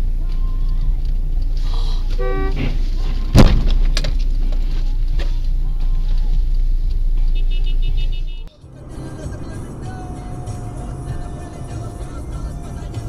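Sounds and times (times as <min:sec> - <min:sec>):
car engine and road rumble: 0:00.0 - 0:13.0
car horn toot: 0:02.1 - 0:03.1, 0:07.2 - 0:08.5
loud crash bang: 0:02.4 - 0:04.0.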